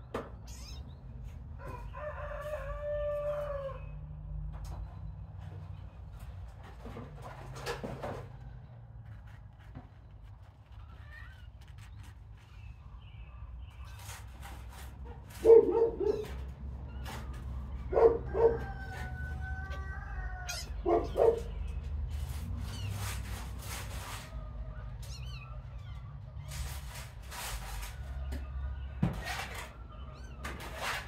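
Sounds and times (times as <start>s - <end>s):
dog barking: 15.4s - 16.4s, 17.9s - 18.8s, 20.7s - 21.5s.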